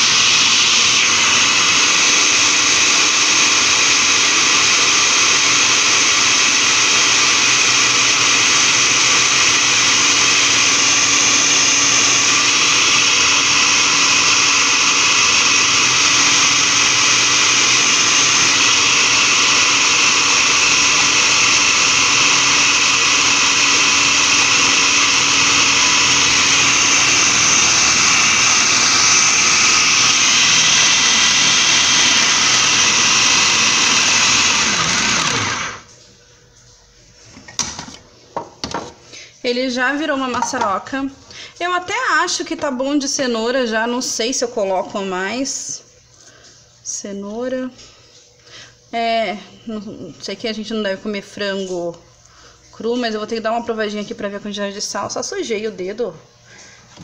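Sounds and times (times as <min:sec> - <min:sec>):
food processor motor grinding: 0:00.0 - 0:35.9.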